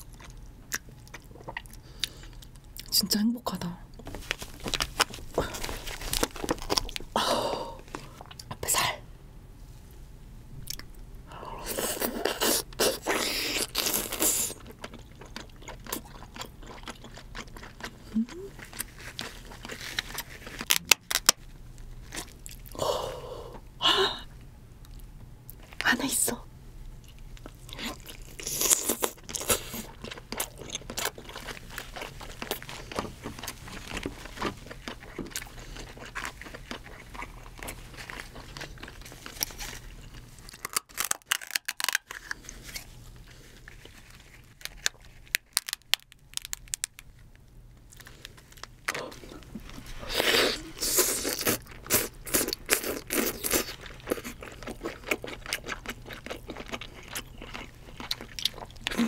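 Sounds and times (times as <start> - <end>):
chewing: 4.3 - 7.1, 11.7 - 20.8, 27.0 - 47.1, 47.9 - 59.0
crab shell crackling: 29.9 - 42.4, 43.7 - 48.8
meat tearing from shell: 40.4 - 42.9.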